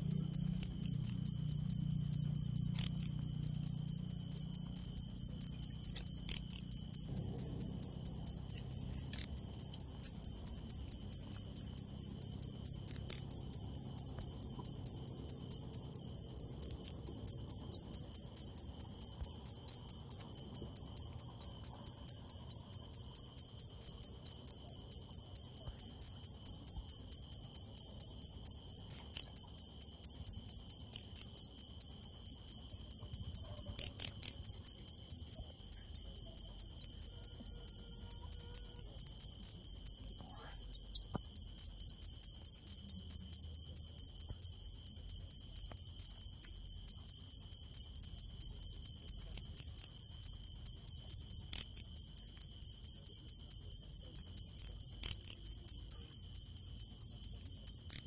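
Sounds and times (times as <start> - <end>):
cricket chirping: 0.0 - 58.0
faint insect trill: 0.0 - 58.0.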